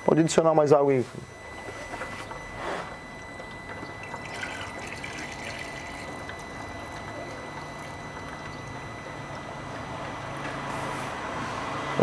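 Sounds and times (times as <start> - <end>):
water trickling through a funnel: 3.4 - 9.7.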